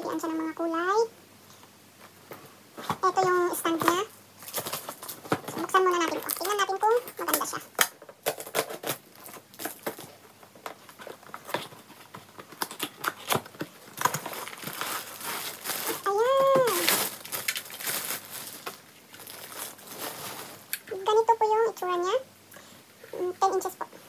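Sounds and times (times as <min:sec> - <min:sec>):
plastic packaging crinkling: 0:02.8 - 0:21.1.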